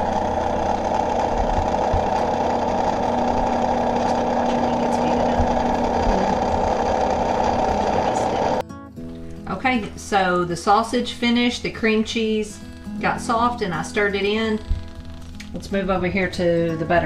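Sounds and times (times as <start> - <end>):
hot chocolate maker motor running: 0.0 - 8.6, 13.0 - 15.7.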